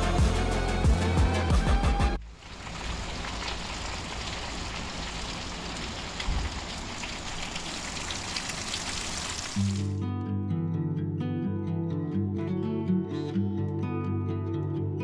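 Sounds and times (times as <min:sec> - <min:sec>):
music: 0:00.0 - 0:02.2, 0:09.6 - 0:15.0
rain falling on lawn: 0:02.2 - 0:09.9.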